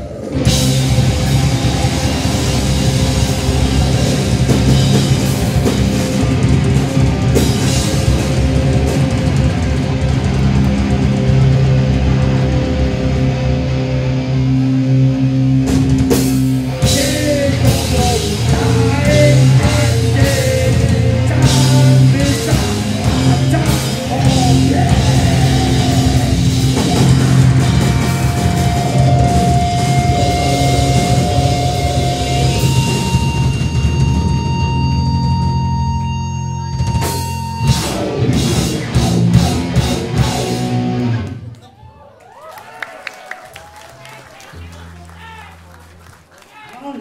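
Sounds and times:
drum kit: 0:00.0 - 0:41.5
bass guitar: 0:00.0 - 0:41.6
distorted electric guitar: 0:00.0 - 0:41.6
vocals: 0:16.6 - 0:33.3, 0:38.1 - 0:40.8, 0:46.5 - 0:47.0.

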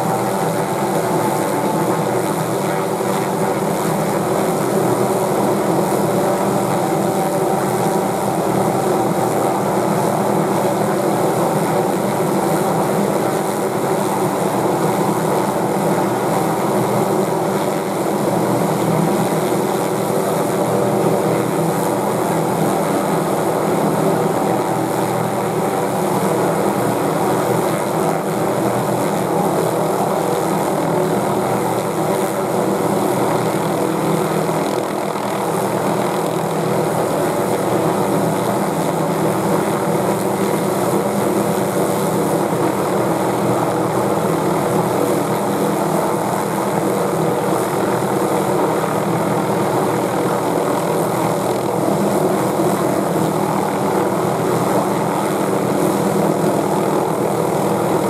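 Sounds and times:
helicopter hovering: 0:00.0 - 0:58.0.

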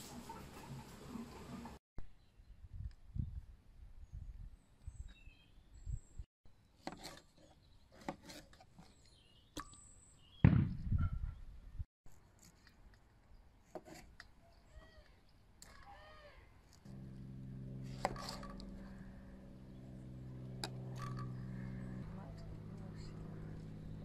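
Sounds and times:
loud low thump: 0:10.4 - 0:11.2
birds chirping: 0:17.0 - 0:24.0.

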